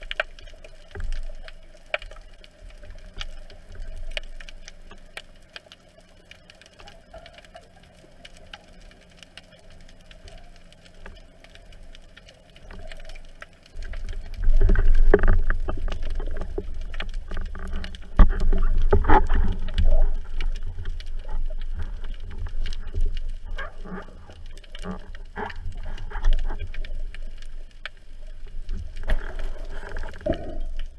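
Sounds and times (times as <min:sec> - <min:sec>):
faint underwater clicks: 0:00.0 - 0:30.9
churning water rumble: 0:13.6 - 0:30.9.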